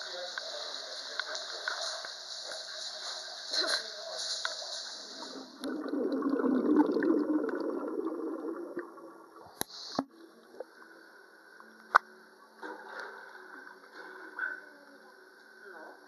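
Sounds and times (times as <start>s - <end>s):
underwater bubbling and gurgling: 5.3s - 10.6s.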